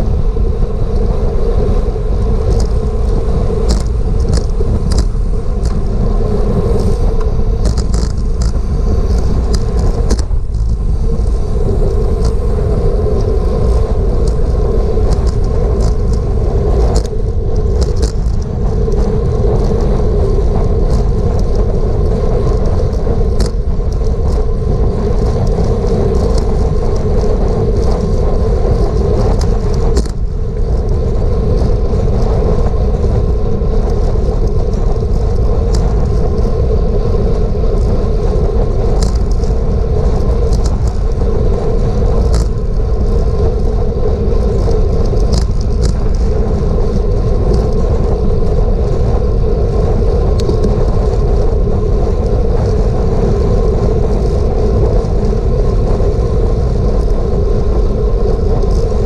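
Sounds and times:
wind and road noise: 0:00.0 - 0:59.0.

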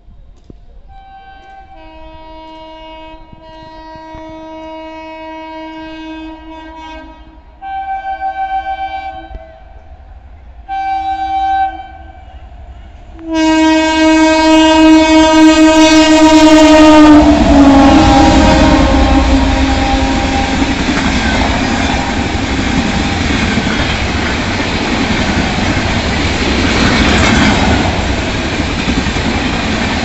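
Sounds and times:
train horn blasts: 0:00.9 - 0:09.9, 0:10.6 - 0:23.3
rush of passing train: 0:07.3 - 0:30.0.

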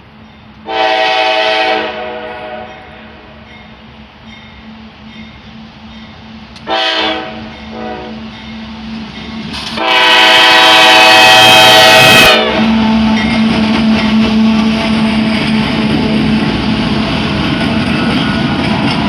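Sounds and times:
locomotive horn blasts: 0:00.6 - 0:03.4, 0:06.6 - 0:08.3, 0:09.8 - 0:15.8
crossing bells ringing: 0:02.3 - 0:06.5, 0:07.1 - 0:09.5, 0:12.6 - 0:19.0
locomotives rumbling past: 0:04.9 - 0:19.0.

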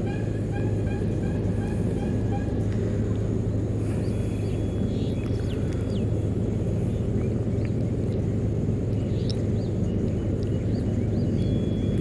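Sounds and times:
low outdoor rumble: 0:00.0 - 0:12.0
faint bird chirps: 0:09.0 - 0:12.0.

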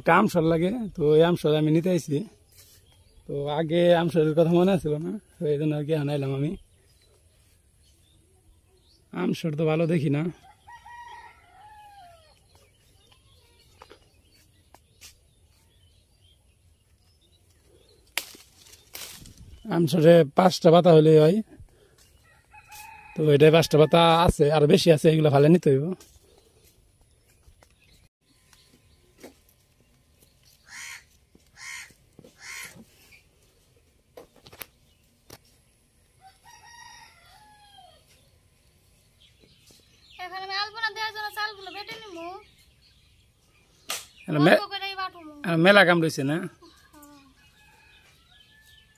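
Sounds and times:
rooster crowing: 0:10.4 - 0:12.3, 0:22.3 - 0:24.2, 0:36.2 - 0:38.0
distant chickens clucking: 0:30.6 - 0:33.3.

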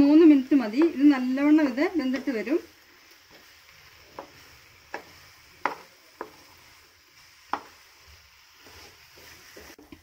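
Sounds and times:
faint sizzle: 0:00.0 - 0:10.0
spatula stirring in pan: 0:00.0 - 0:10.0
spatula tapping pan: 0:00.1 - 0:02.5, 0:04.1 - 0:06.6, 0:07.4 - 0:10.0.

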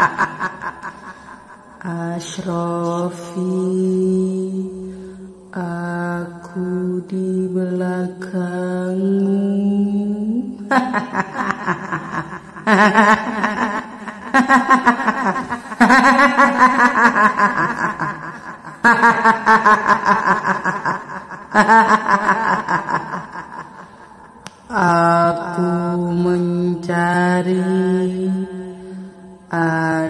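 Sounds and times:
trembling ghostly laughter: 0:00.0 - 0:01.9, 0:10.7 - 0:24.4.

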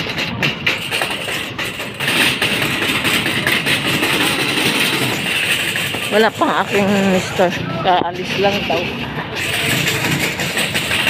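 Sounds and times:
wire trolley rattling on concrete: 0:00.0 - 0:11.0.

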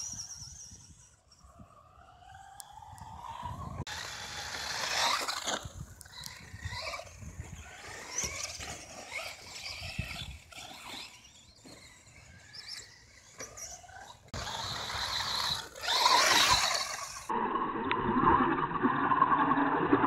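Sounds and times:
toy car motors whining: 0:00.0 - 0:17.3.

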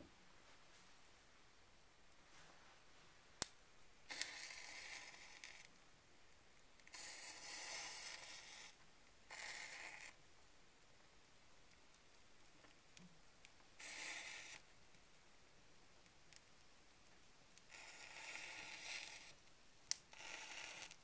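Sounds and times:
burning cardboard hissing crackle: 0:04.1 - 0:05.8, 0:06.8 - 0:10.2, 0:11.7 - 0:15.2, 0:17.6 - 0:21.0.

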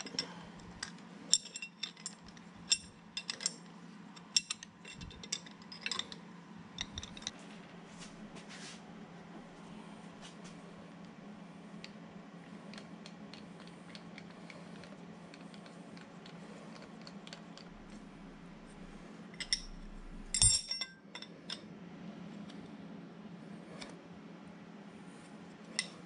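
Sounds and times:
wrench clinking on steel: 0:00.0 - 0:03.6, 0:19.4 - 0:21.7
steady low hum: 0:00.0 - 0:26.0.

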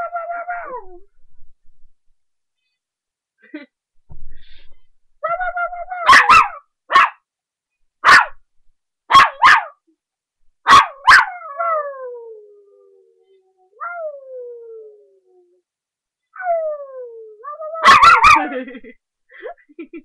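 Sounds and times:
puppy barking: 0:06.0 - 0:07.2, 0:08.0 - 0:08.4, 0:09.1 - 0:09.8, 0:10.7 - 0:11.4, 0:17.8 - 0:18.5
puppy howling: 0:11.0 - 0:15.6, 0:16.4 - 0:18.5.

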